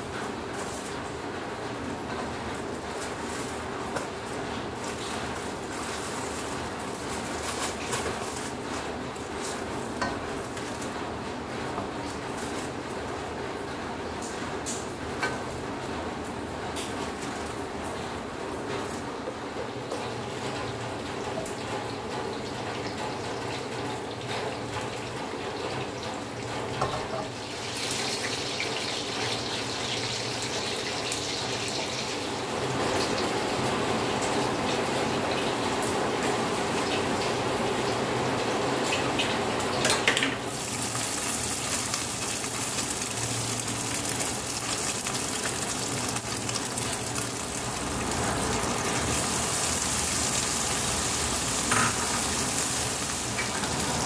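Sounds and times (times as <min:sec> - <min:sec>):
oil sizzling in a wok: 0:26.8 - 0:54.0.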